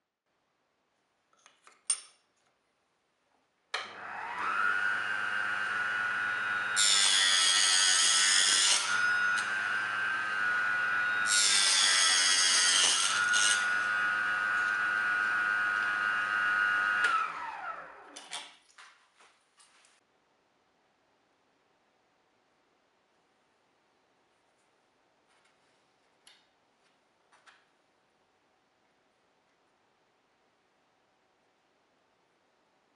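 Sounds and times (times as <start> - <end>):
table saw whine: 3.8 - 18.2
saw cutting wooden strip: 3.8 - 18.4.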